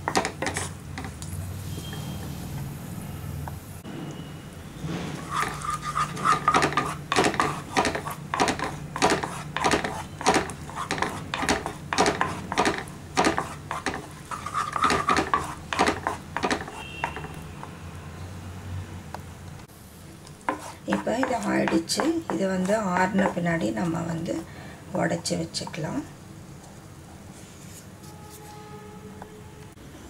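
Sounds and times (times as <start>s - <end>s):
wooden spatula scraping a pan: 0.1s - 1.2s, 5.1s - 17.4s, 20.5s - 24.1s.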